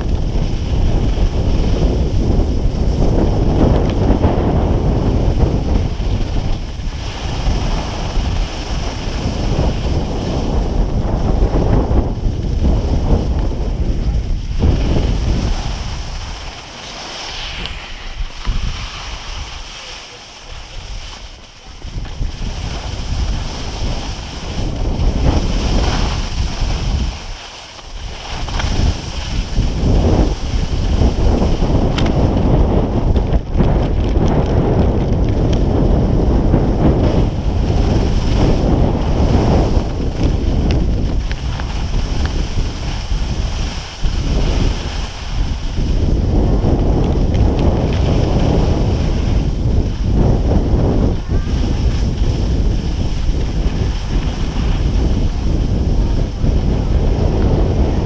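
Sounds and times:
wind buffeting microphone: 0.0 - 58.0
skis hissing on snow: 0.1 - 11.6, 12.3 - 31.9, 36.9 - 46.5, 47.4 - 58.0.

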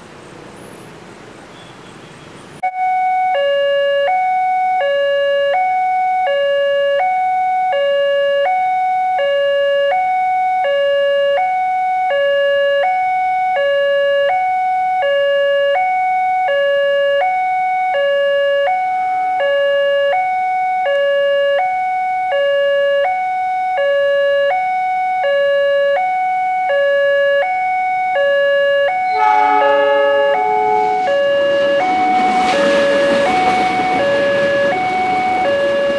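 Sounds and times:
two-tone crossing alarm: 1.5 - 35.9
locomotive horn: 28.9 - 35.9.

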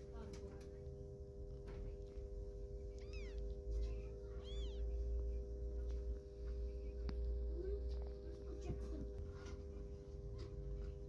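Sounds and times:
kitten mewing: 2.8 - 5.1.

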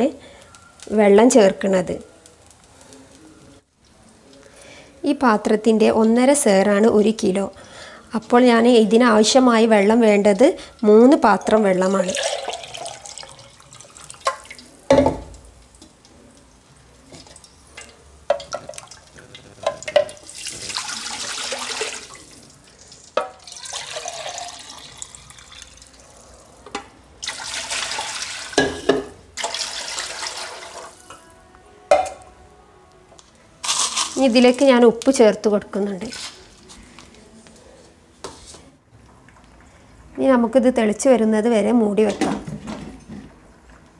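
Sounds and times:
water pouring into pot: 11.8 - 14.8, 17.2 - 26.2, 27.2 - 28.6, 29.4 - 31.0.

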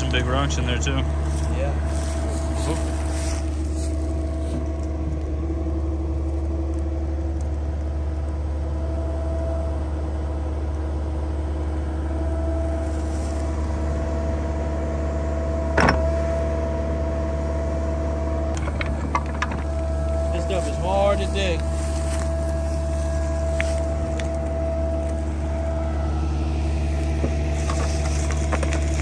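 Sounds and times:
mini excavator engine running: 0.0 - 29.0
bucket digging rocky ground: 26.8 - 29.0.

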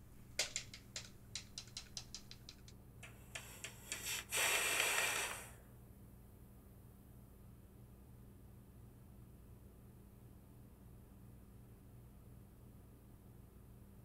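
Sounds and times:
sponge tapping powder: 0.4 - 5.2
hissing rush: 3.1 - 5.6.

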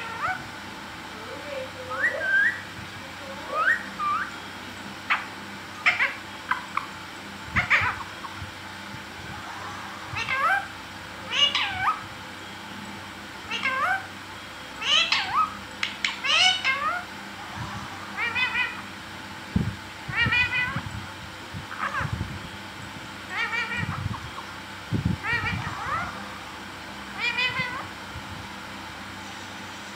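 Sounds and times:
parakeet calls: 0.0 - 0.5, 1.4 - 4.4, 5.0 - 8.4, 9.4 - 12.1, 13.4 - 14.2, 14.8 - 17.2, 18.0 - 18.9, 20.0 - 20.9, 21.6 - 22.2, 23.2 - 24.6, 25.2 - 28.0.

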